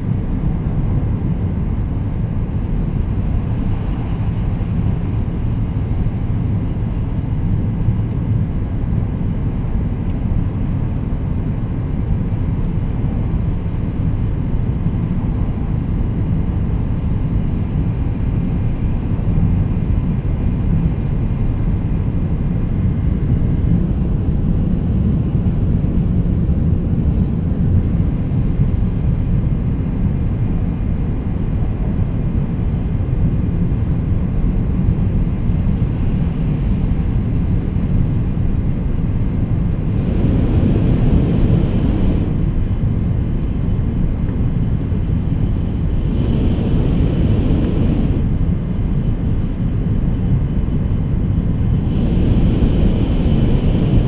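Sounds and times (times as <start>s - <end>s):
train rumble from inside cabin: 0.0s - 54.0s.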